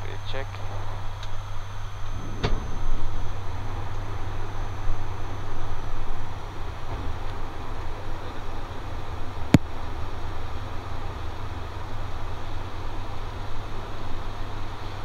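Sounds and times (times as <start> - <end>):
low propeller hum: 0.0 - 15.0
rushing air: 1.8 - 8.1.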